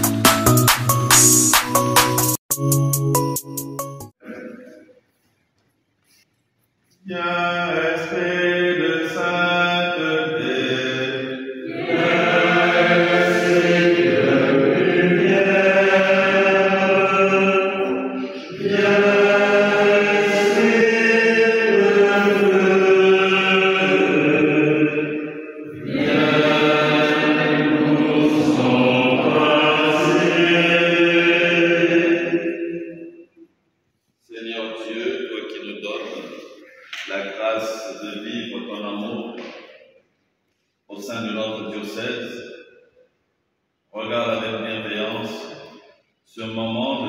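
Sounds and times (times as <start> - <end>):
group singing a hymn: 7.1 - 33.4.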